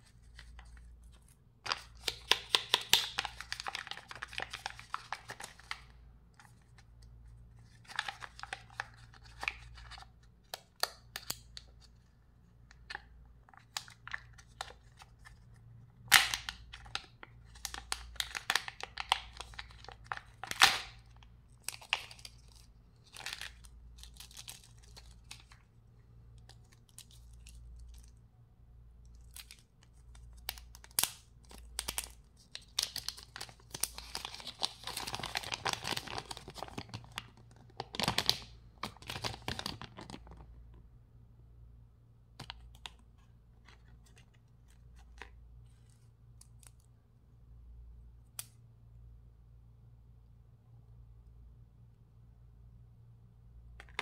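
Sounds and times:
low steady hum: 0.0s - 54.0s
foil and plastic crinkling: 31.8s - 40.4s.

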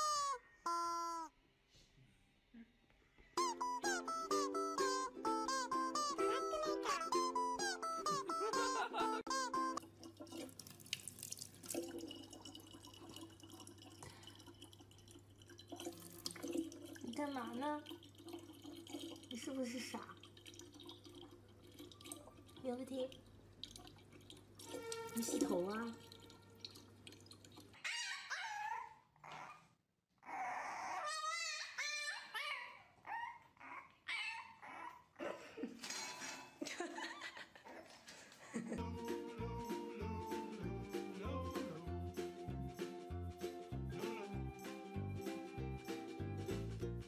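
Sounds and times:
puppy whining and whimpering: 3.4s - 9.8s, 27.8s - 35.4s
tap water trickling into bottle: 9.8s - 27.8s
water dripping and splashing: 9.8s - 27.8s.

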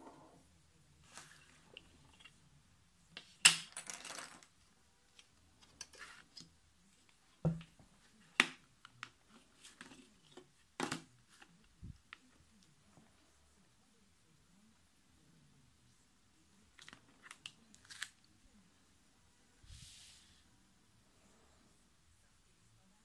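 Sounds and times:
plastic sliding on paper: 19.6s - 20.4s.

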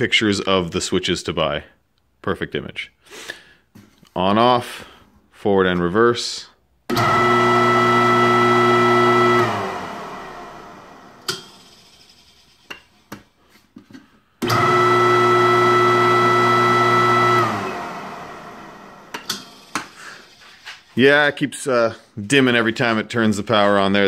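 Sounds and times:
grinder motor humming: 6.9s - 11.6s, 14.4s - 19.6s.

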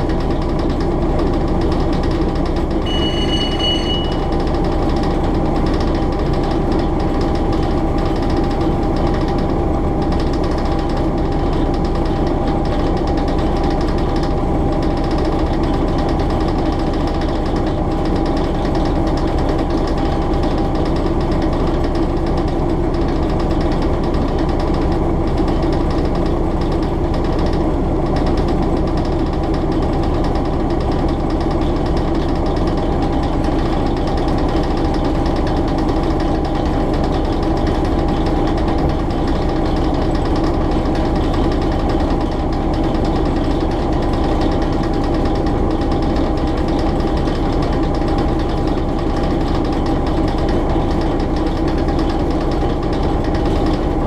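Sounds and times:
diesel engine thumping: 0.0s - 54.0s
train rumbling on rails: 0.0s - 54.0s
brief high tone: 2.8s - 4.4s.

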